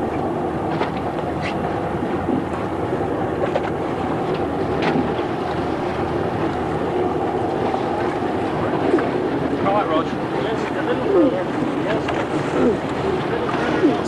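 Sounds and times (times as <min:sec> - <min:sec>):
boat engine drone: 0:00.0 - 0:14.0.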